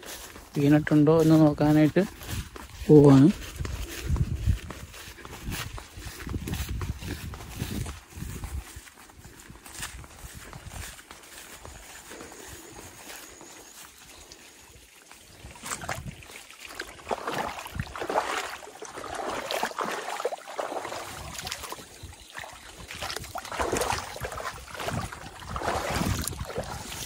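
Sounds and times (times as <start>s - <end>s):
footsteps in wet grass and mud: 0.0s - 27.0s
water trickling: 13.4s - 27.0s.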